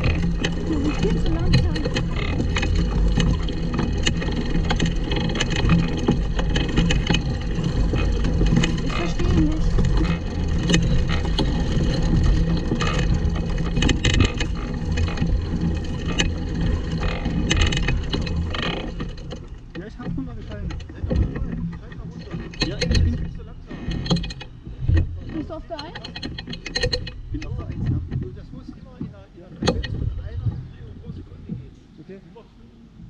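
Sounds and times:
kart frame rattling: 0:00.0 - 0:31.8
low rolling rumble: 0:00.0 - 0:33.0.

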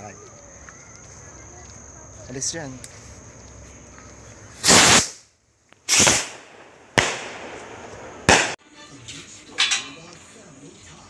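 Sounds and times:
firework bangs overhead: 0:04.6 - 0:05.2, 0:05.9 - 0:08.6.

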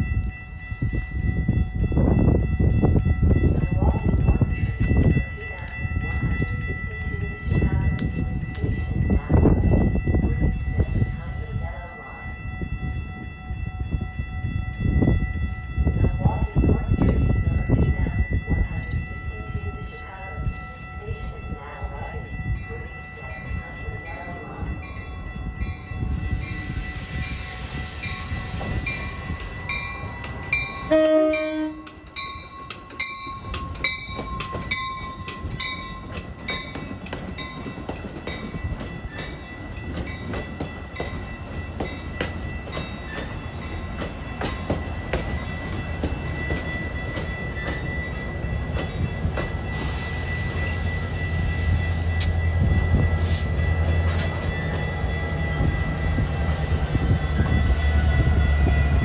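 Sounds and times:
high dinging bell: 0:00.0 - 0:59.0
train rumbling and clacking past: 0:00.0 - 0:59.0
train horn blast: 0:30.9 - 0:32.1.

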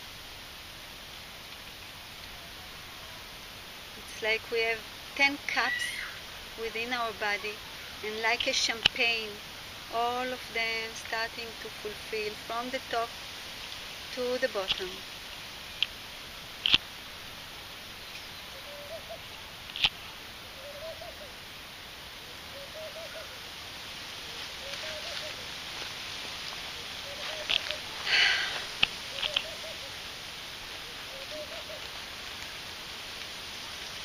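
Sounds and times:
steady hiss: 0:00.0 - 0:34.0
faint low bird calls: 0:01.6 - 0:03.7, 0:05.1 - 0:09.1, 0:13.5 - 0:33.0
sharp clicks: 0:16.6 - 0:16.9, 0:28.8 - 0:29.6
short breath: 0:28.0 - 0:28.7.

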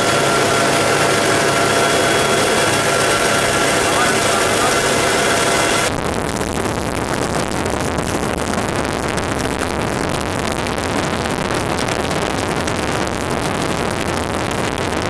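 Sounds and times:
helicopter engine and wind noise: 0:00.0 - 0:05.9.

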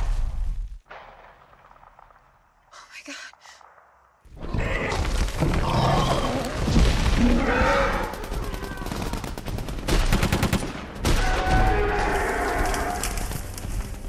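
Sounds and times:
rapid automatic gunfire: 0:07.9 - 0:11.0.

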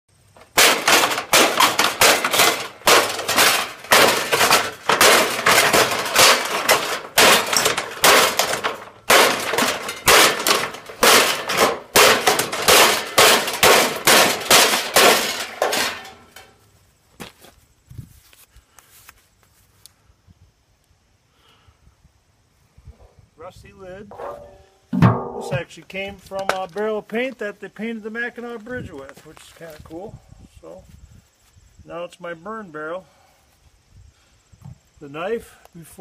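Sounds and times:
knife hacking sheet metal: 0:00.5 - 0:16.4.

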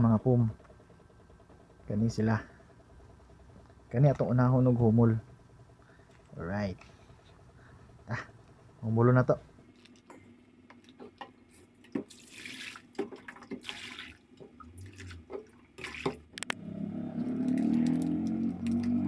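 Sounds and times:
water splashing into steel basin: 0:11.9 - 0:16.3
plastic sachet crinkling: 0:17.4 - 0:19.0.

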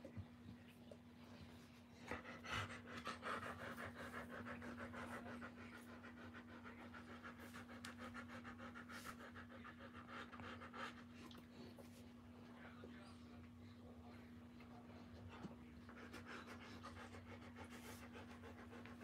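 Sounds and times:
dog panting rapidly: 0:01.9 - 0:11.5, 0:15.8 - 0:19.0.

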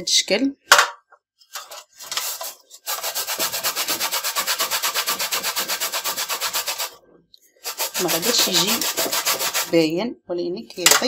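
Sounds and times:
lemon scraping on metal grater: 0:02.1 - 0:06.9, 0:07.6 - 0:09.8.

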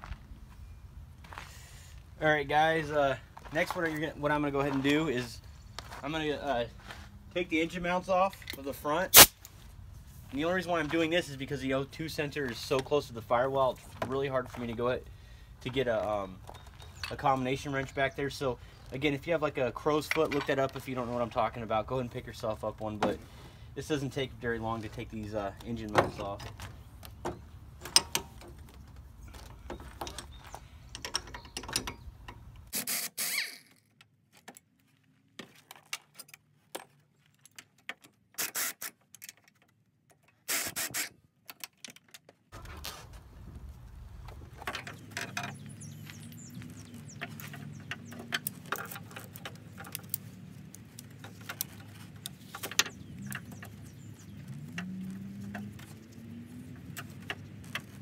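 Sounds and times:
pneumatic air ratchet: 0:09.1 - 0:09.4, 0:32.7 - 0:33.7, 0:38.4 - 0:39.0, 0:40.4 - 0:41.2
metallic clicks and rattles: 0:26.1 - 0:32.7.

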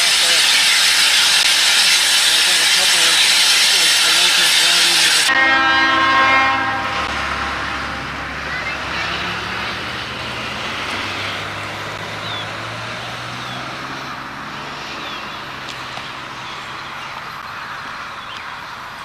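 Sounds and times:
broad hiss: 0:00.0 - 0:05.5
locomotive engine hum: 0:00.0 - 0:19.0.

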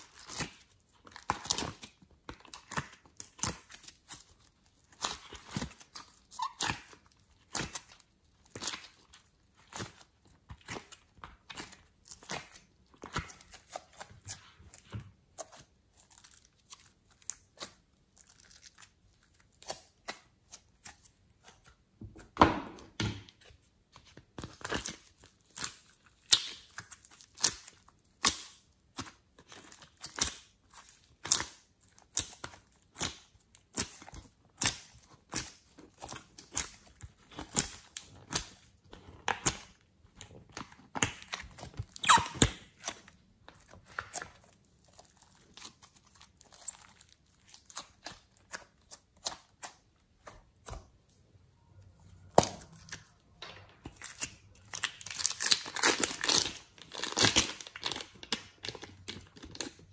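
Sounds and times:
slime popping and crackling: 0:24.4 - 0:50.9, 0:53.8 - 0:59.9.

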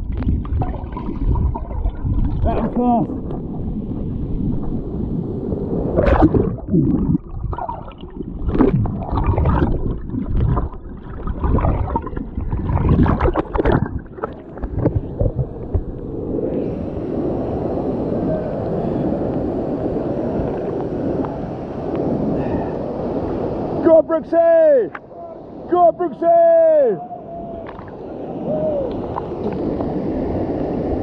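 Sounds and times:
stream water splashing: 0:00.0 - 0:05.0, 0:05.9 - 0:15.8.

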